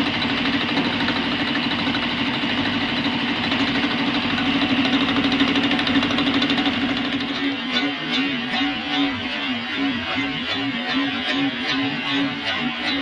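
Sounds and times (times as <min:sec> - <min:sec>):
milling machine hum: 0:00.0 - 0:13.0
cutter chattering on metal: 0:04.3 - 0:13.0.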